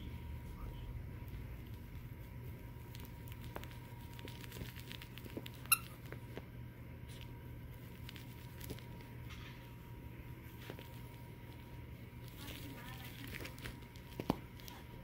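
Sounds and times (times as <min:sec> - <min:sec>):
puppy tussling with plush toy: 0:01.2 - 0:15.0
toy squeak: 0:05.6 - 0:06.0.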